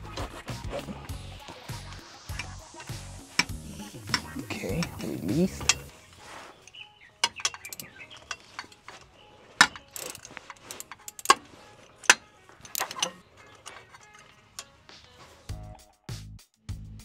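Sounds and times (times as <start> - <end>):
ratchet wrench clicking: 1.2 - 5.9, 6.6 - 14.7.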